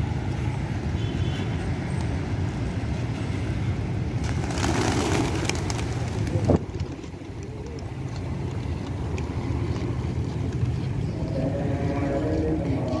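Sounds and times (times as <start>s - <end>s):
traffic rumble: 0.0s - 13.0s
wind: 0.0s - 13.0s
pigeon wings flapping: 4.2s - 9.1s.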